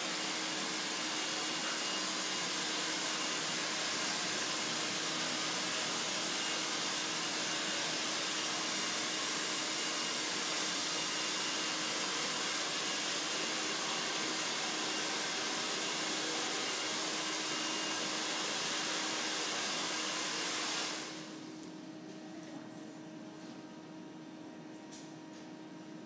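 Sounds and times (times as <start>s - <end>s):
blower motor rushing air: 0.0s - 21.5s.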